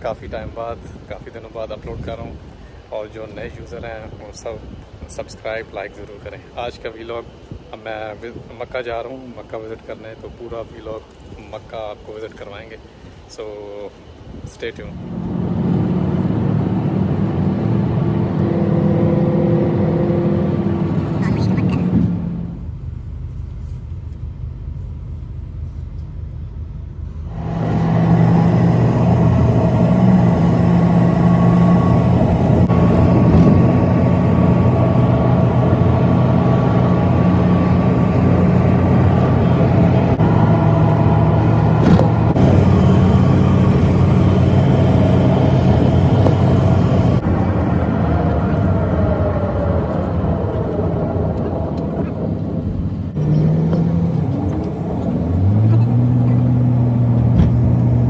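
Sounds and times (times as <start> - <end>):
road noise: 0.0 - 58.0
car engine hum: 14.9 - 58.0.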